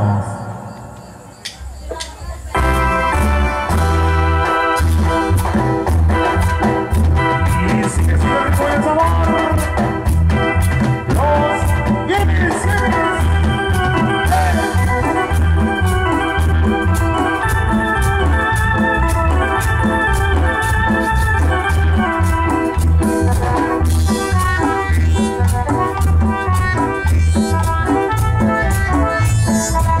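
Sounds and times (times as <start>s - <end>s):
drums: 0.0s - 30.0s
organ-sounding keyboard melody: 0.0s - 30.0s
electric bass: 2.6s - 30.0s.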